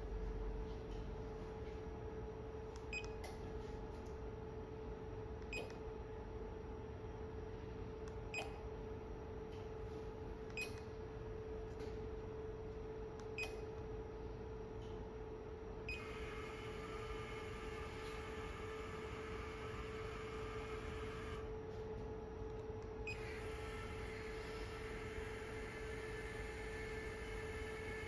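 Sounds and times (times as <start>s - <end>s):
steady electrical hum: 0.0s - 28.0s.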